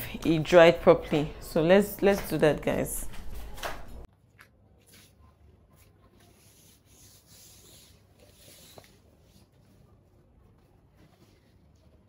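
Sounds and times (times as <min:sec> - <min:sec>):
hand rubbing mattress fabric: 0:05.8 - 0:12.0.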